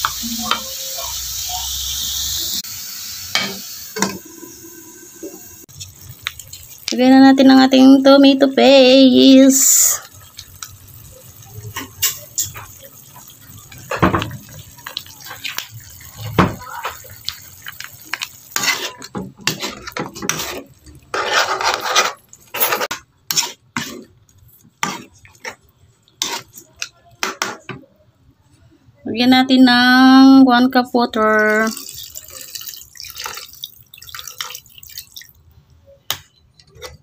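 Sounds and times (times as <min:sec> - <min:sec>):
metal spatula scraping a wok: 0:18.2 - 0:24.2, 0:24.8 - 0:25.6, 0:26.2 - 0:27.6.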